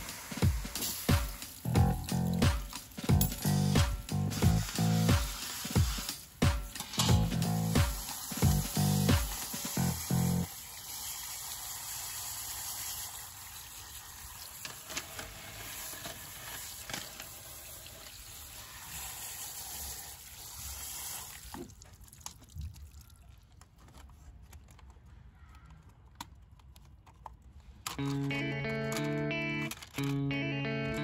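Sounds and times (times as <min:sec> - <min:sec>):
liquid hissing and trickling: 0:00.0 - 0:03.1, 0:04.3 - 0:06.4, 0:07.3 - 0:23.5
faint clicks and crackles: 0:21.9 - 0:30.2.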